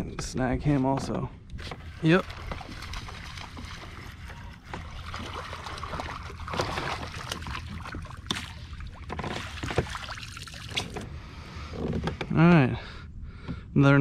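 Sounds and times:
fish thrashing and splashing: 1.6s - 11.1s.

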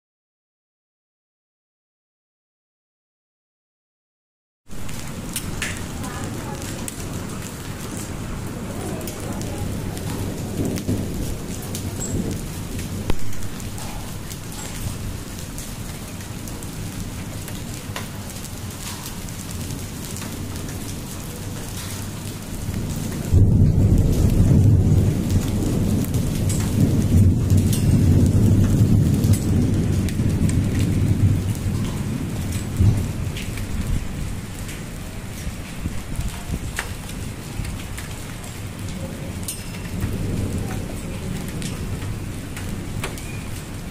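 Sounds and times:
hail and rain on concrete: 4.7s - 43.9s
hailstones ticking: 4.7s - 43.9s.

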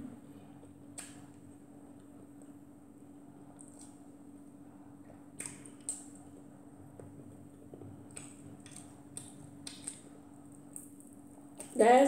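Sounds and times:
low steady hum: 0.0s - 12.0s
chewing and mouth noise: 5.0s - 11.0s.

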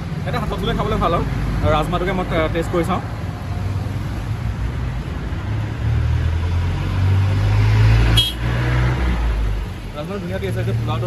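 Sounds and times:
street traffic: 0.0s - 11.0s.

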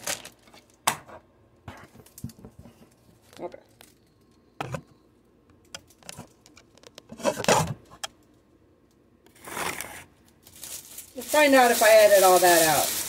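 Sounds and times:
cellophane crinkling: 0.0s - 0.8s, 9.3s - 13.0s.

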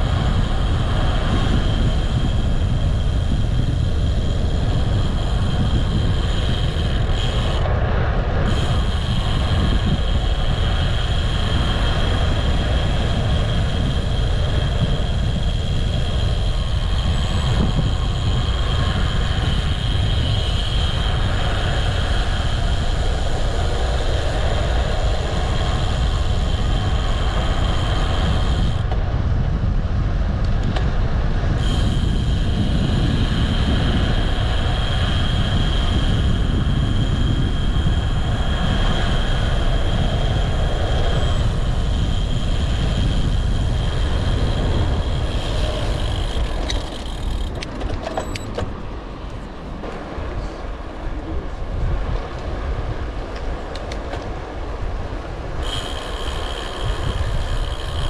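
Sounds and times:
bike rumble: 0.0s - 58.0s
thin high whine: 0.0s - 58.0s
wind on microphone: 0.0s - 58.0s.

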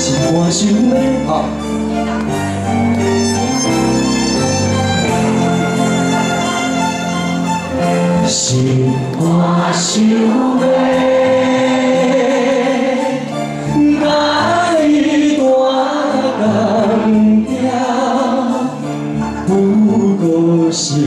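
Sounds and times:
man singing into microphone: 0.0s - 1.6s, 8.2s - 21.0s
instrumental accompaniment: 0.0s - 21.0s.

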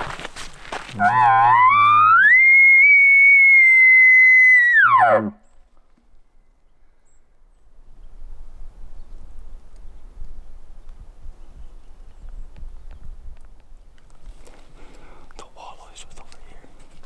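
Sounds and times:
elk bugle call: 0.9s - 5.4s.

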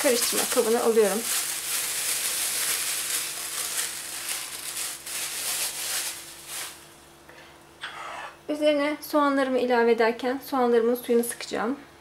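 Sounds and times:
plastic bag crinkling: 0.0s - 7.0s.

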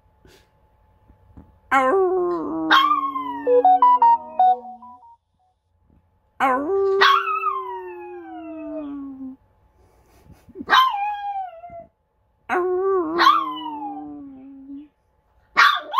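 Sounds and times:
dog howling: 7.0s - 9.2s.

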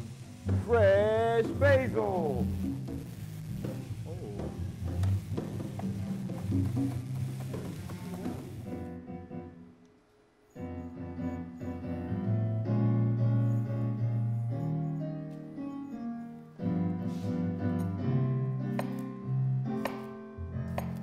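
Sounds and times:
frying sizzle: 0.0s - 8.7s
bass guitar notes: 0.0s - 9.5s, 11.1s - 14.6s, 16.6s - 20.8s
electric keyboard chords: 0.0s - 9.8s, 10.6s - 21.0s.

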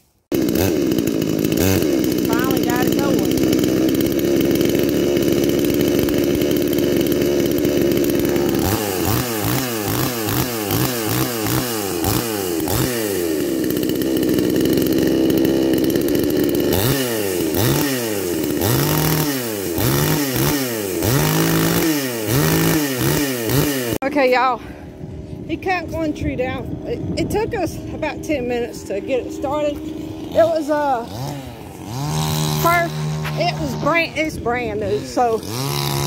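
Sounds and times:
chainsaw engine revving: 0.1s - 24.1s, 26.0s - 36.0s.

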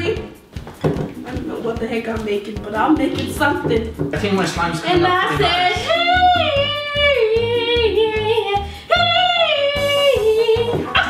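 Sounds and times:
steady beat: 0.0s - 11.0s
high sung vocal: 4.8s - 11.0s.

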